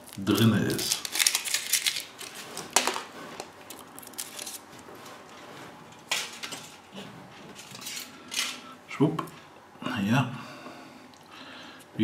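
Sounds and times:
foil wrapper crinkling: 0:00.0 - 0:04.7.

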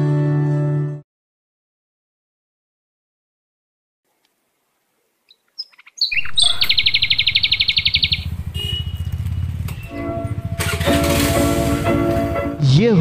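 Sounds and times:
bird chirps: 0:05.3 - 0:10.0
engine running with rapid pulsing: 0:06.4 - 0:12.5.

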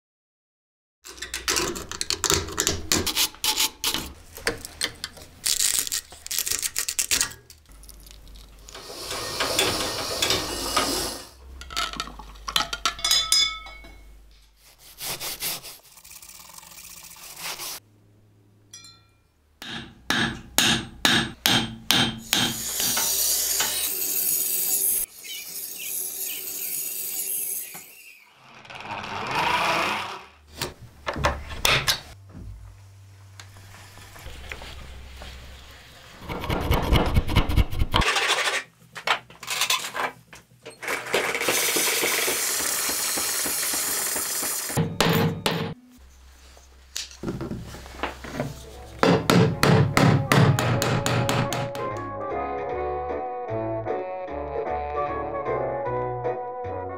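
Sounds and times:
buffing wheel spinning: 0:41.4 - 0:44.8.

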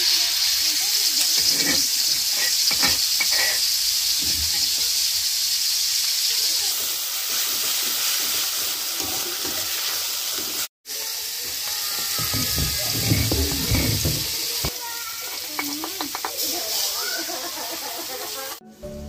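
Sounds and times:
chili paste sizzling in oil: 0:00.0 - 0:19.0
metal spatula scraping wok: 0:01.2 - 0:04.9, 0:11.9 - 0:17.0.

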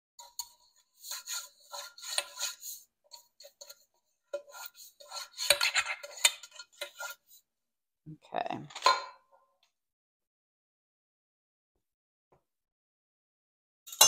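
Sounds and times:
hand rubbing inside glass pan: 0:00.2 - 0:07.4.

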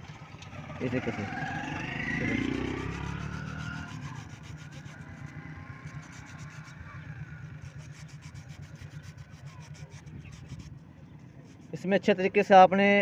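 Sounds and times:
sandpaper rubbing and scraping: 0:02.3 - 0:12.6.

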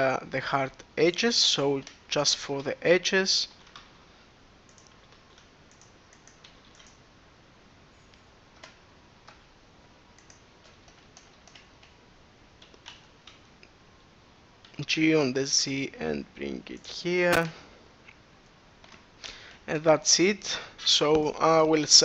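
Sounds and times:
low background hiss: 0:00.0 - 0:22.0
computer keyboard and mouse clicks: 0:03.6 - 0:03.9, 0:04.7 - 0:07.0, 0:08.5 - 0:09.5, 0:10.2 - 0:12.0, 0:12.6 - 0:13.4.

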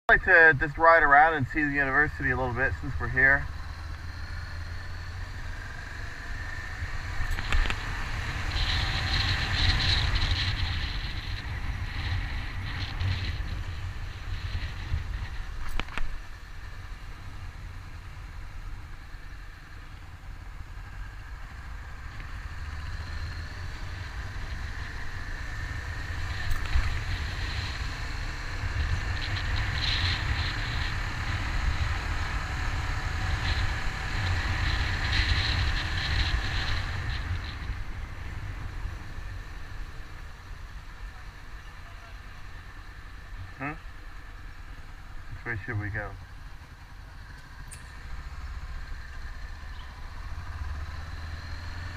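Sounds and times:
wind rumble on microphone: 0:00.1 - 0:19.5, 0:20.1 - 0:41.0
motorcycle engine: 0:00.1 - 0:51.9.

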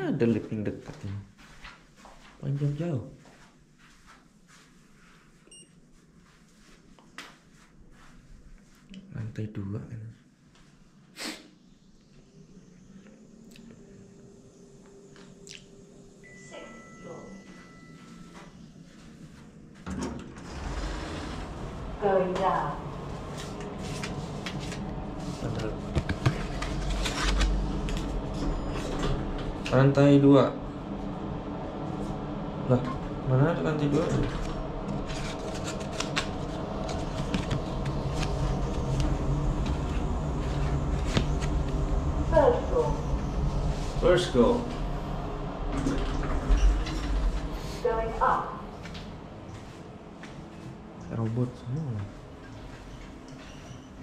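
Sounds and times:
lift arrival chime: 0:16.2 - 0:19.2, 0:27.7 - 0:29.9, 0:52.6 - 0:54.0
lift sliding doors opening: 0:19.8 - 0:30.0, 0:33.9 - 0:47.9.

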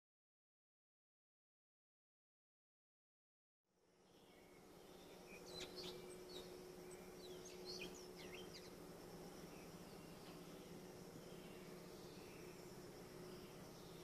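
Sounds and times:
high insect hum: 0:03.8 - 0:14.0
low steady drone: 0:03.8 - 0:14.0
small birds chirping: 0:04.0 - 0:14.0.

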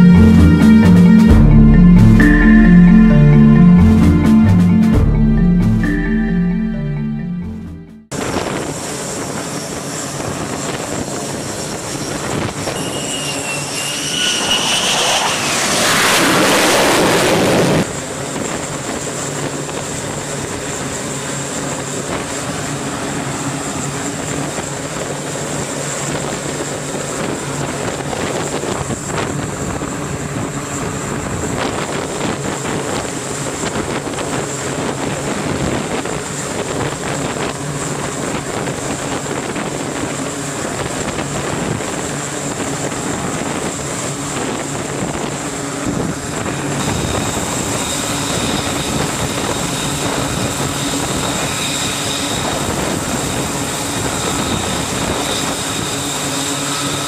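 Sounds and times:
jet engine roar with whine: 0:08.2 - 0:57.0
jet rushing blast: 0:12.5 - 0:17.9.

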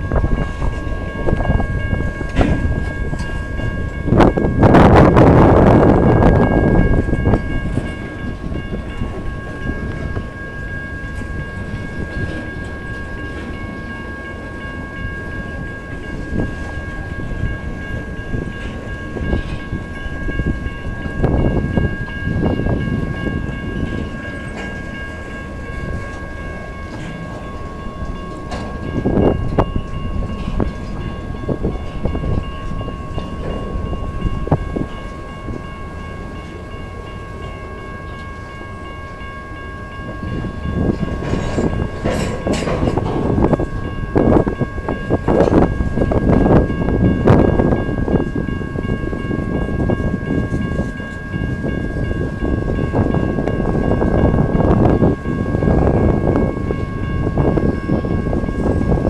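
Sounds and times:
freight cars rumbling and clattering: 0:00.0 - 0:10.4, 0:40.2 - 0:59.0
level-crossing warning bell: 0:00.0 - 0:59.0.

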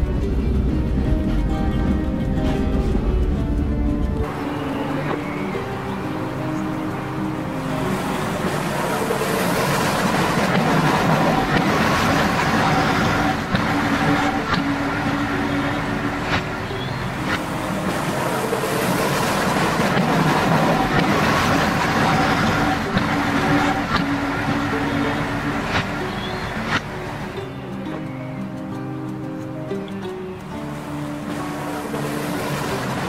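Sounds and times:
model railbus engine drone: 0:00.0 - 0:28.2.

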